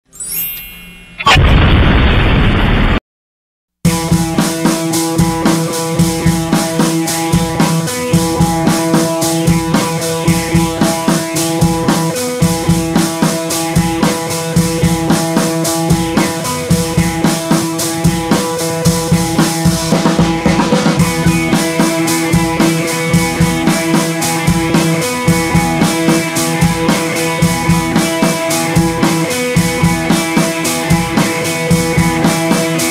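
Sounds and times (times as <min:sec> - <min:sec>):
background music with drum beat: 0:03.9 - 0:32.9.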